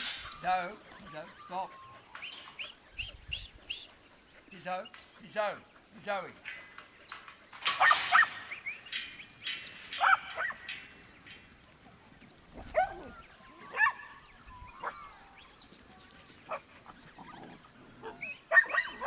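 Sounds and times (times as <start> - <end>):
dog barking: 10.0 - 10.6, 13.7 - 14.1, 18.0 - 19.0.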